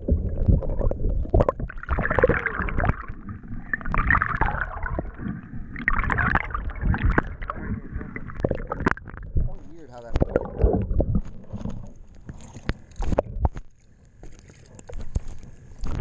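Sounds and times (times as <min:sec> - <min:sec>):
low uneven rumble: 0:00.0 - 0:16.0
water gurgling underwater: 0:00.0 - 0:16.0.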